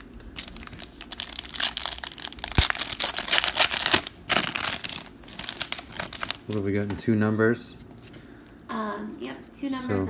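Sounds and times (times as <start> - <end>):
foil wrapper crinkling and ripping: 0.0 - 6.8.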